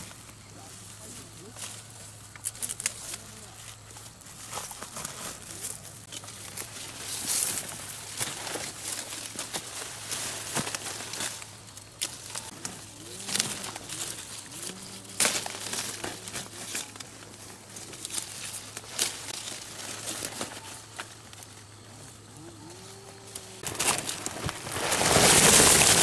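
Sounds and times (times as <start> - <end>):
leaves and branches rustling: 0.0 - 26.0
fruit picking clicks: 1.6 - 3.8, 10.5 - 21.5.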